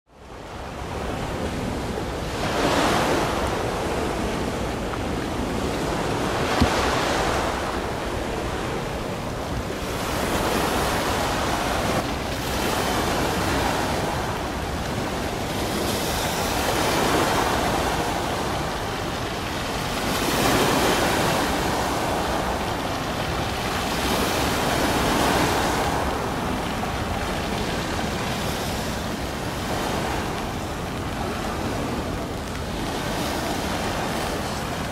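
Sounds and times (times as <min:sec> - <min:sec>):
sea waves washing in: 0:00.1 - 0:34.9
wind rumbling on microphone: 0:00.1 - 0:34.9.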